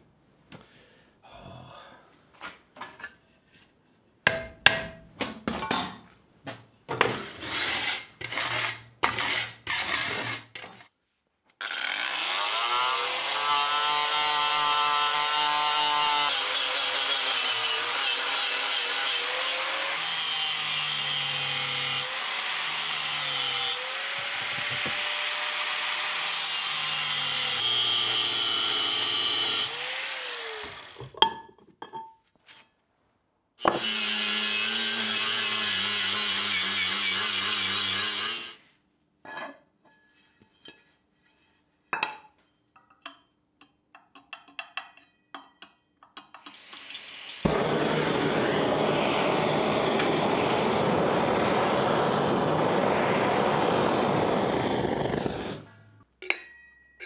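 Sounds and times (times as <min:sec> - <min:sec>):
angle grinder grinding steel: 0:11.6 - 0:31.1, 0:33.6 - 0:38.6, 0:46.4 - 0:55.8
drill boring into metal: 0:46.5 - 0:55.6.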